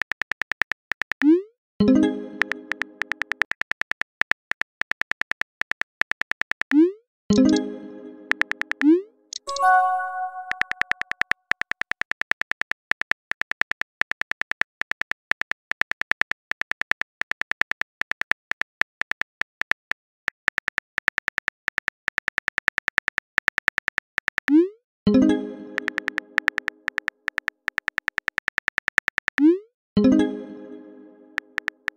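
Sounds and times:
phone keyboard typing clicks: 2.4 - 6.8, 8.3 - 24.6, 25.8 - 29.4, 31.4 - 31.9
short message chime: 9.5 - 10.9.

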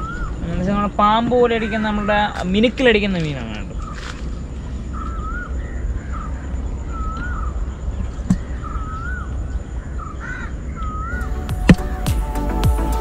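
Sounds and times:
bird calling with wavering whistle: 0.0 - 0.4, 3.8 - 13.0.

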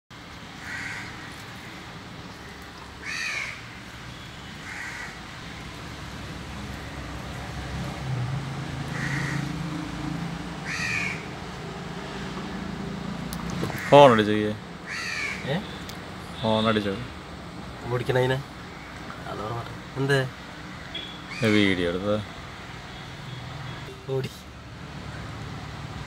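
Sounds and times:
crow cawing: 0.6 - 1.8, 2.4 - 5.6, 8.8 - 9.7, 10.6 - 11.3, 13.7 - 14.2, 14.8 - 15.8, 18.7 - 19.0.

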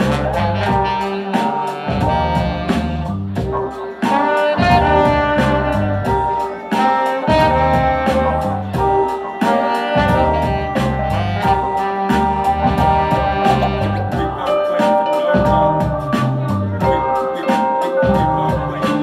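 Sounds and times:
electric bass line: 0.0 - 1.0, 1.9 - 3.7, 4.6 - 6.4, 7.2 - 9.1, 10.0 - 14.6, 15.4 - 17.1
saxophone and trombone: 0.0 - 19.0
steady drum beat: 0.0 - 19.0.

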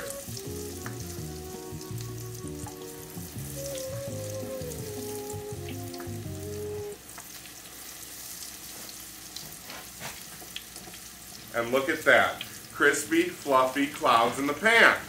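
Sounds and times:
background music: 0.0 - 7.0
onion rings frying in oil: 0.0 - 15.0.

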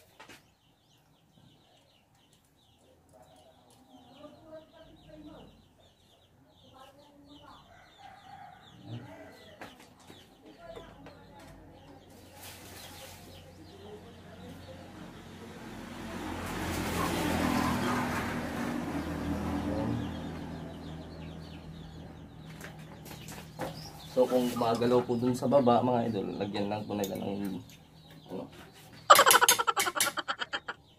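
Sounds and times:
passing vehicle engine and road noise: 12.2 - 28.3
birds calling: 16.2 - 30.9
chickens clucking: 21.2 - 30.9.

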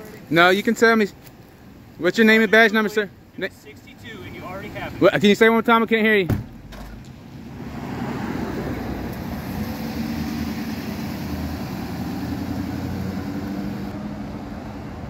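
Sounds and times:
pickup truck engine driving off: 6.4 - 14.3.

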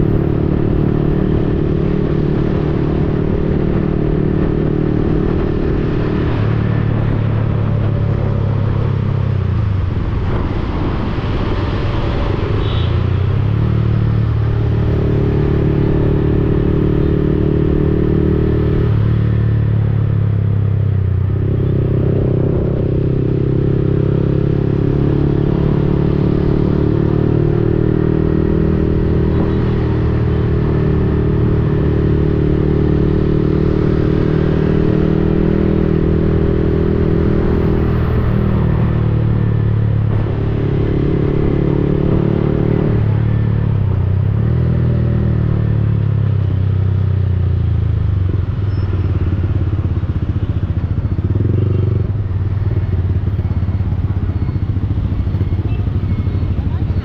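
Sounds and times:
motorcycle engine running: 12.6 - 57.0.

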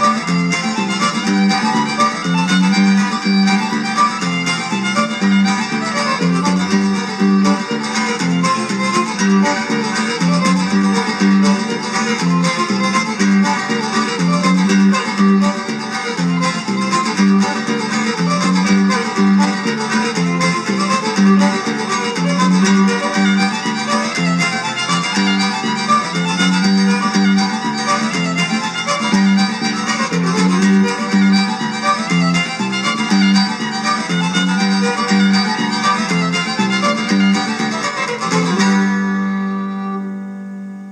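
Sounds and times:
fiddle playing a fast reel: 0.0 - 40.9
guitar accompaniment: 0.0 - 40.9.

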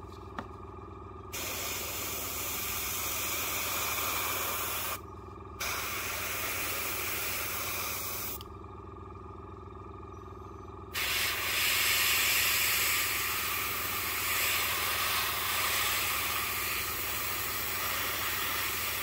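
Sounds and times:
low steady hum: 0.0 - 19.0
airbrush spraying air hiss: 1.4 - 5.0, 5.6 - 8.4, 11.0 - 19.0.

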